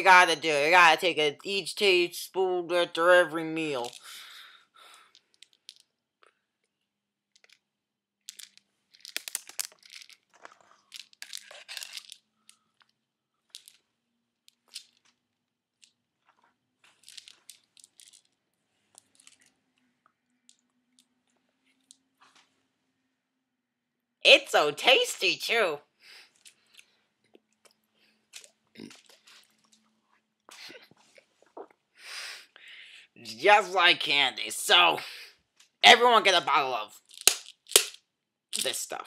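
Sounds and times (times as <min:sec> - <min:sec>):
bottle handling crackles and rustles: 0:08.4 - 0:12.9, 0:15.8 - 0:19.5, 0:27.6 - 0:31.8.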